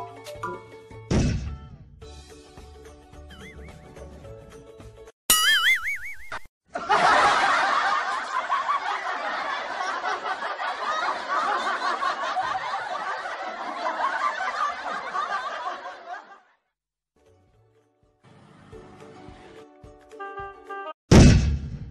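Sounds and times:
canned laughter: 6.7 - 16.5.

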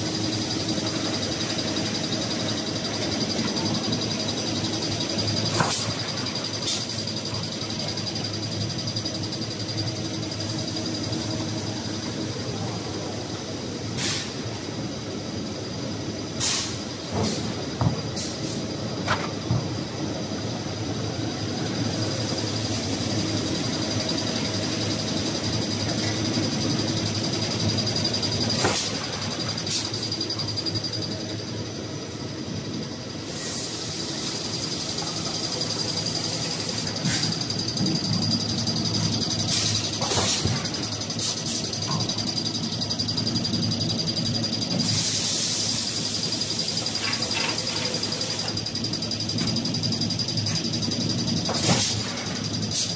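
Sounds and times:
production line machinery humming: 0.0 - 52.9.

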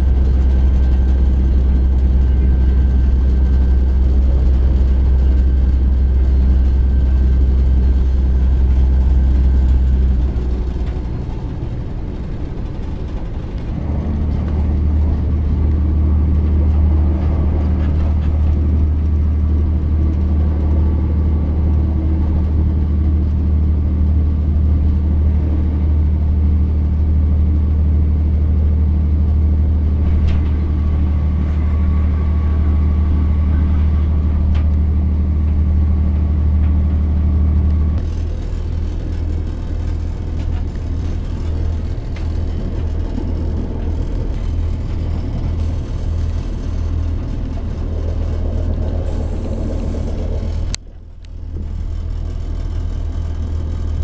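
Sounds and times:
train engine drone inside cabin: 0.0 - 54.0.

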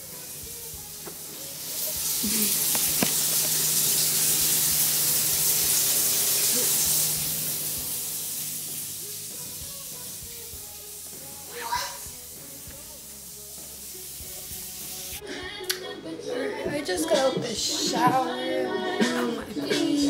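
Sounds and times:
shower water running: 0.0 - 15.2.

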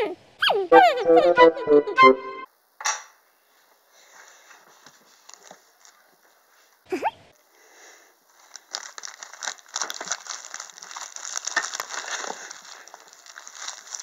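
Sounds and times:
candy wrappers crinkling: 8.3 - 14.0.

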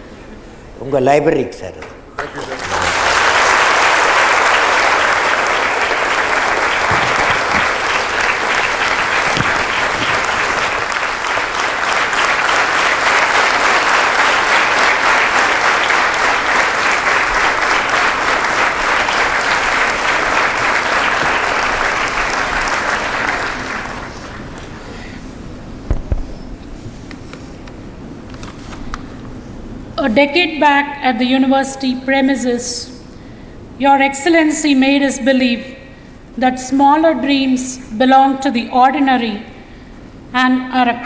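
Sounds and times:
audience applauding: 2.2 - 25.0.

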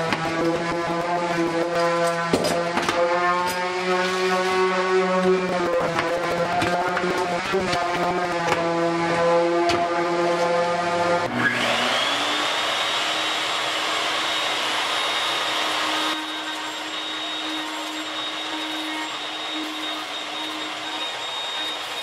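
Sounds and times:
router motor whining: 11.2 - 22.0.

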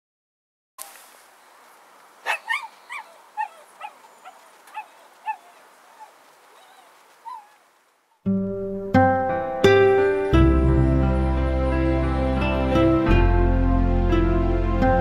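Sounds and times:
faint steady hiss: 0.8 - 8.2
dog yelping: 2.2 - 7.7.

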